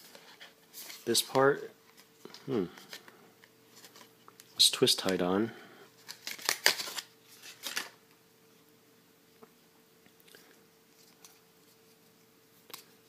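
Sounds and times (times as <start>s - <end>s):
paper and packaging rustling: 3.7s - 4.1s, 6.0s - 8.0s.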